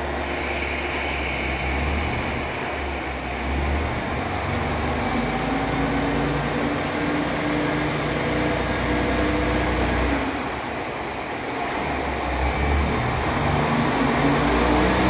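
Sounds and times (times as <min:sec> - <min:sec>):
diesel railcar engine humming: 0:00.0 - 0:15.0.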